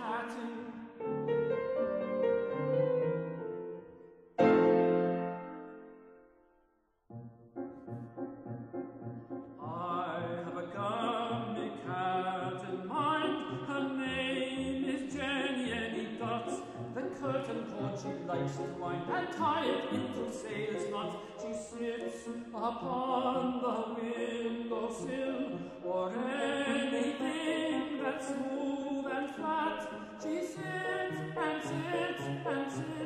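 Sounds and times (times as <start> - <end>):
person singing: 0.0 - 1.8, 9.6 - 33.0
piano accompaniment: 1.0 - 6.2, 7.1 - 11.8.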